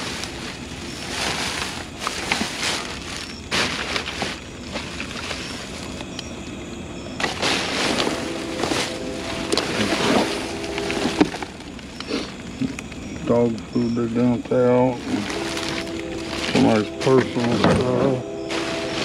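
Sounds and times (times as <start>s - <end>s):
plastic trash bags rustling: 0.0s - 6.1s, 7.2s - 12.7s, 14.8s - 19.0s
sharp clicks: 12.0s - 13.8s.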